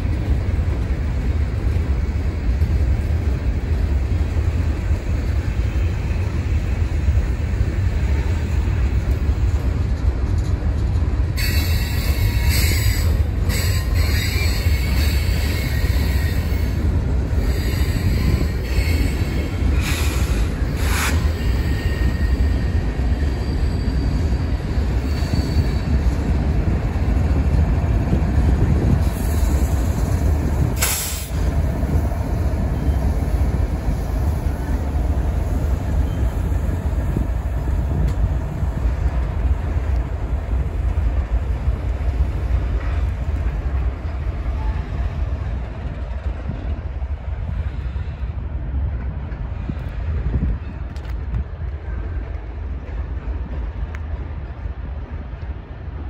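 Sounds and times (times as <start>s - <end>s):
diesel locomotive: 0.0s - 56.0s
freight train rumbling: 0.0s - 56.0s
faint wheel squeal: 17.4s - 26.0s, 35.9s - 36.5s.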